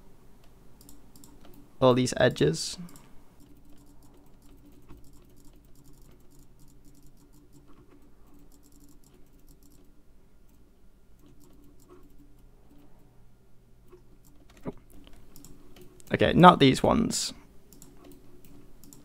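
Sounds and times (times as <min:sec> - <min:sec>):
faint steady hum: 0:00.0 - 0:19.0
computer mouse clicks: 0:00.4 - 0:01.7, 0:02.8 - 0:10.6, 0:11.2 - 0:13.0, 0:13.9 - 0:16.1, 0:17.7 - 0:19.0.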